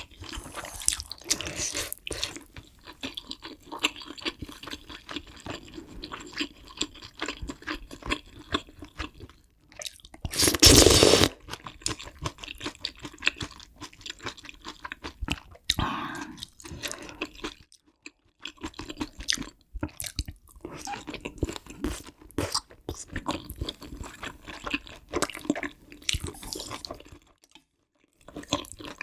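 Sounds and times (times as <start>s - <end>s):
slurping noodles and broth: 0.0s - 2.4s, 10.3s - 11.4s
chewing and wet mouth sounds: 0.0s - 10.8s, 11.4s - 29.0s.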